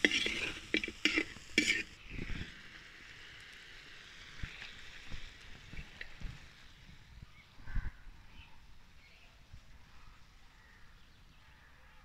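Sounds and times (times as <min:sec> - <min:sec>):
metal spoon scraping a pot: 0:00.0 - 0:02.0
faint sizzle: 0:00.0 - 0:12.0.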